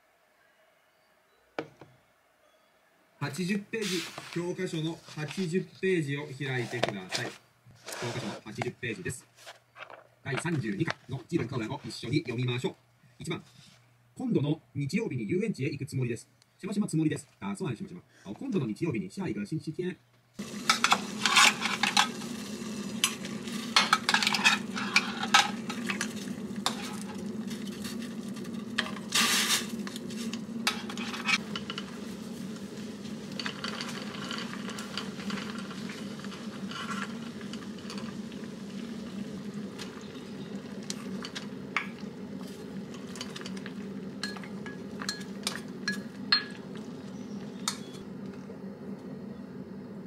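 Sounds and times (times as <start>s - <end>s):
water boiling in saucepan: 20.4s - 50.0s
steady low hum: 20.8s - 50.0s.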